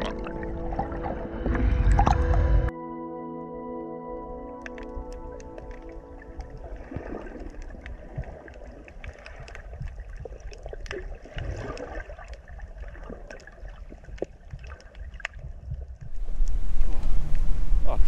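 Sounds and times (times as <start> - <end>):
water gurgling and sloshing: 0.0 - 2.7, 4.2 - 18.0
small sharp clicks and pops: 4.6 - 6.5, 7.5 - 16.6.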